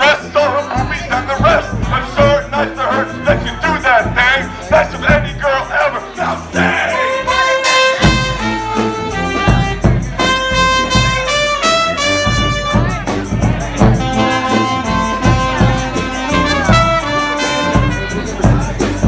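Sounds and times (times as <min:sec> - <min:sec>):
bass drum beat: 0:00.0 - 0:19.0
brass band playing: 0:00.0 - 0:19.0.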